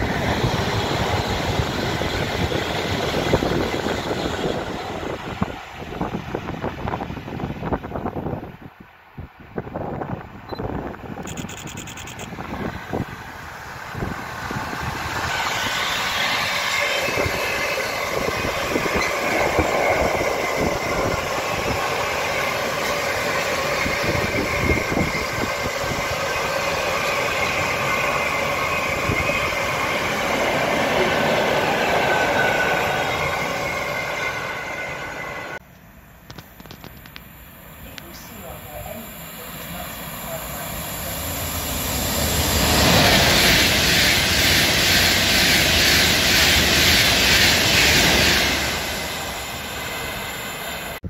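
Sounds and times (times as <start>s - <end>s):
train wheels rumbling on rails: 0.0s - 51.0s
thin high tones: 11.2s - 12.4s.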